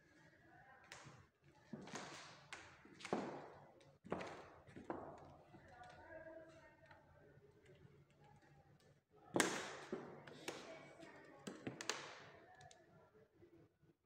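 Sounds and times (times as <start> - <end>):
knocks and taps with echo: 9.4 - 10.8.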